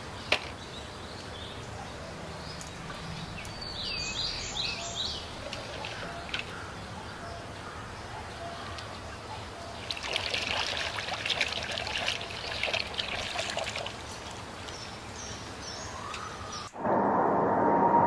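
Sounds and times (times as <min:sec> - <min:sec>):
water splashing in a tub: 0:05.4 - 0:06.6, 0:09.8 - 0:14.8.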